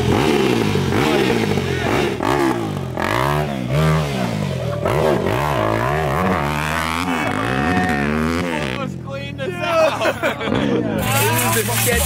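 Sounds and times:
dirt bike engine revving: 0.0 - 9.0.

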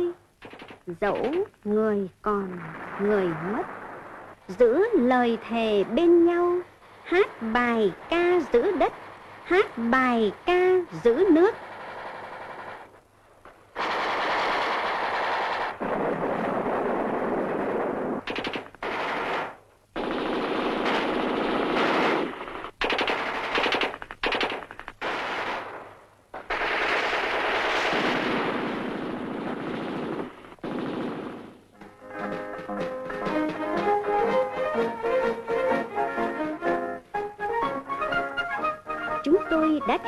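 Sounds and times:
automatic gunfire: 0.4 - 1.4, 11.5 - 12.9, 13.8 - 31.8.

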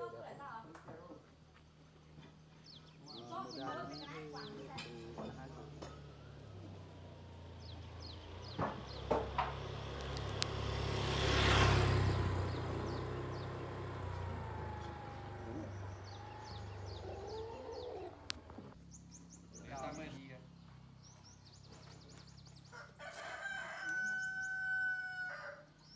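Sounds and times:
vehicle passing on road: 1.4 - 25.9
bird chirping: 2.0 - 10.6, 11.5 - 22.8.

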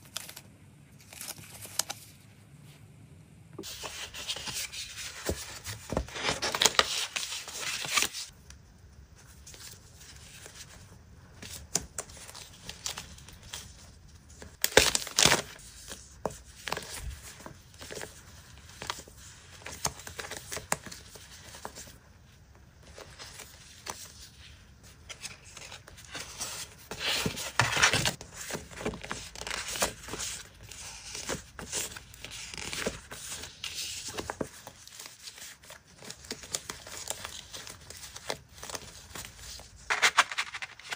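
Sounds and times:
paper crinkling and rustling: 0.0 - 2.3, 3.6 - 8.4, 22.8 - 40.9.

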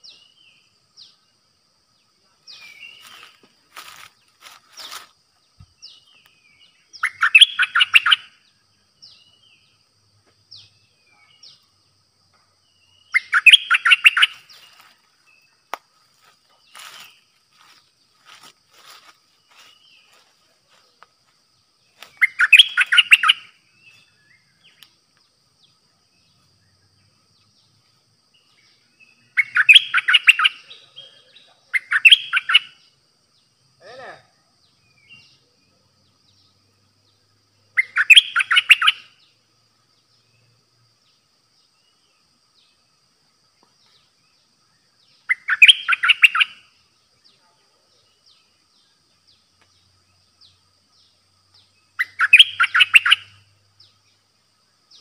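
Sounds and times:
faint bird chirps: 0.0 - 55.0
bulbul singing: 2.1 - 15.8, 21.8 - 33.0, 33.8 - 39.4, 44.1 - 55.0.

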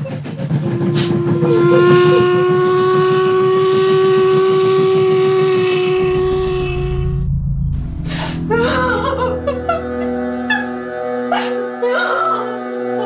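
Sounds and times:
low rumble: 0.2 - 11.8
long steady whistle: 0.7 - 7.0.

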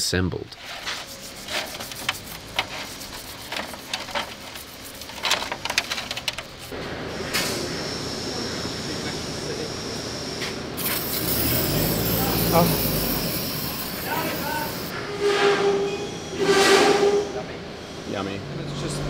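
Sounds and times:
brush scrubbing metal: 0.6 - 6.8, 10.8 - 14.9
steady hiss: 0.6 - 14.9
metal clicks and scrapes: 0.7 - 6.7.

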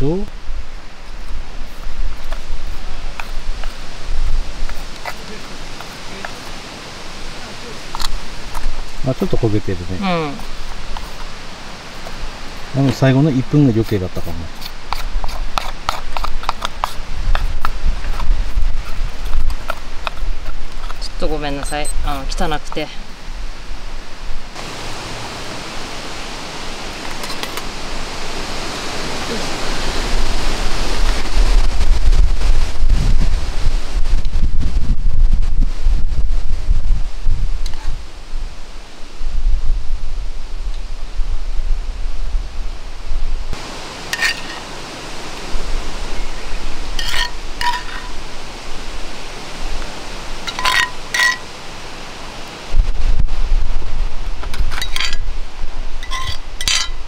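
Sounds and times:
wind rumble on microphone: 0.0 - 43.8, 44.7 - 51.4, 52.0 - 57.0
metal ladle clinking on dishes: 44.1 - 44.6, 47.0 - 48.2, 50.5 - 51.5, 56.0 - 57.0.

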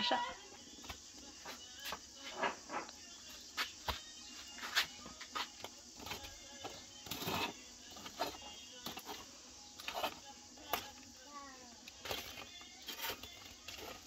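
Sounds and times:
metal tongs scraping through ash: 5.5 - 11.2, 11.9 - 14.0.

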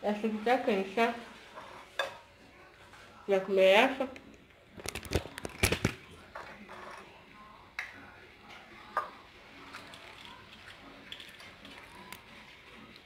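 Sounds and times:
fork scraping ceramic plate: 1.4 - 2.2, 6.4 - 7.1.

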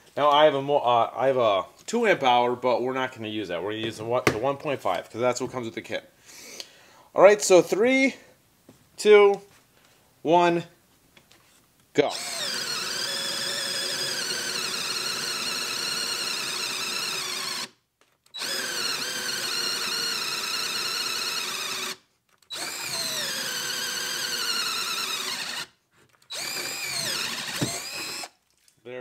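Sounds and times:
drill boring into wood: 12.1 - 28.4.

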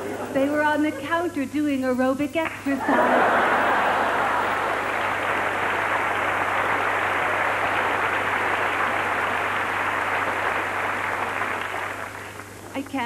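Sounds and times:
audience applauding: 2.9 - 12.7.

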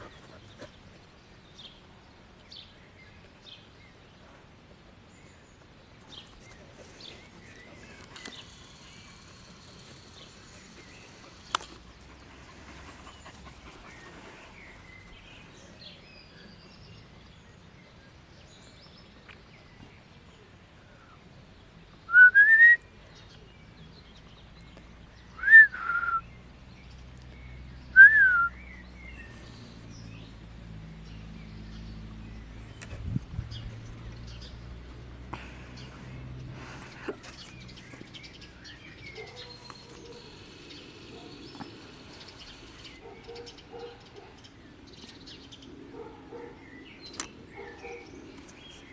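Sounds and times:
person whistling short notes: 22.1 - 22.8, 25.4 - 26.2, 28.0 - 28.5.

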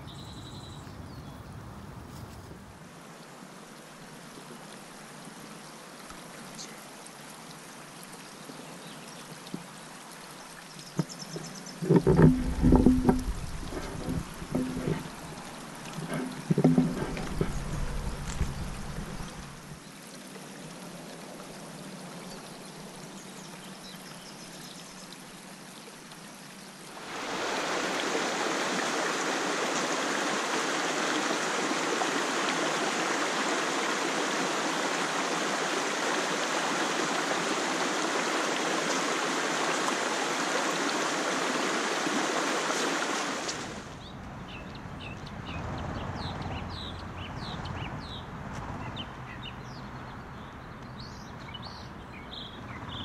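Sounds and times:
faint bird chirps: 0.0 - 1.6
creek water rushing over stones: 2.7 - 44.6.

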